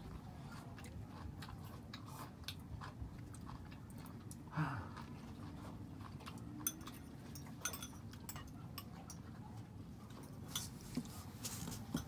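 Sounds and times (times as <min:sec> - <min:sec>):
utensils clinking on dishes: 0:06.6 - 0:09.2, 0:10.2 - 0:12.0.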